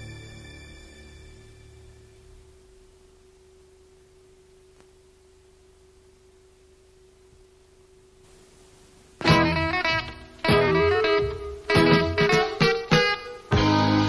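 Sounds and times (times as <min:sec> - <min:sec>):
faint hiss: 0:00.0 - 0:14.0.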